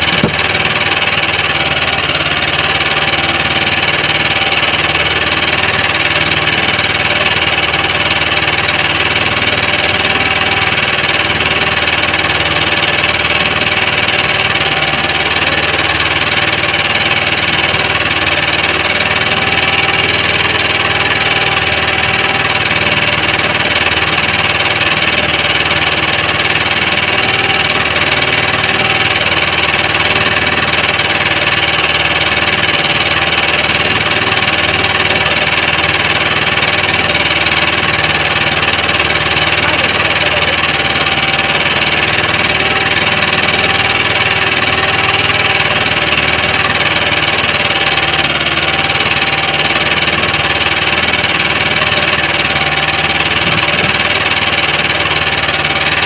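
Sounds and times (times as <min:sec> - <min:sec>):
boat engine droning: 0:00.0 - 0:56.0.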